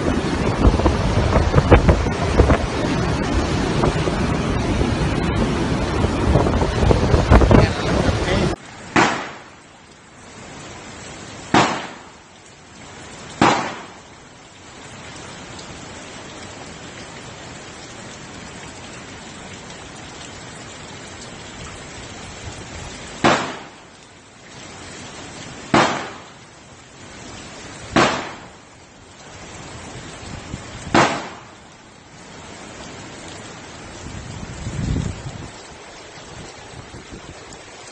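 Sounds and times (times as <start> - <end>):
loud wind bursts: 0.0 - 8.6
heavy rain hiss: 0.0 - 37.9.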